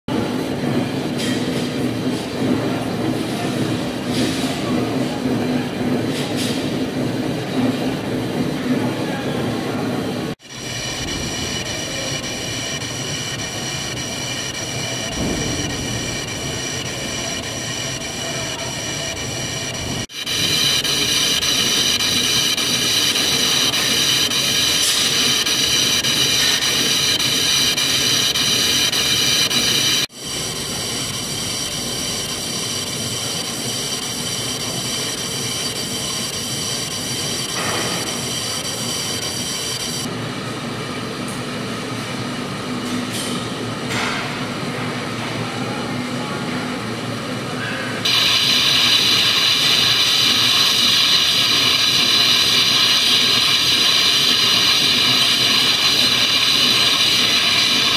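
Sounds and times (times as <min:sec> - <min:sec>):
lathe running with whining tones: 0:10.1 - 0:40.8, 0:48.0 - 0:57.9.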